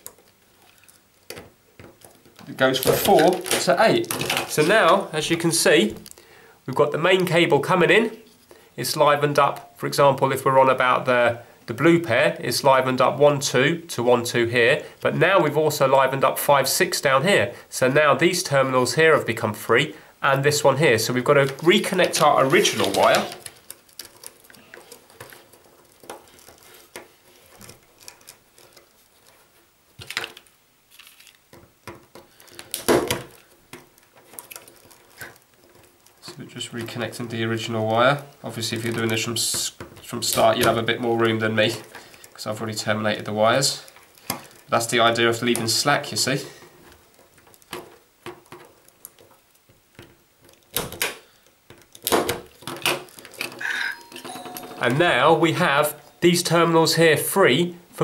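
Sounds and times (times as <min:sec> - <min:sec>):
telephone wires clicking and rustling: 0:00.0 - 0:05.4, 0:21.0 - 0:56.7.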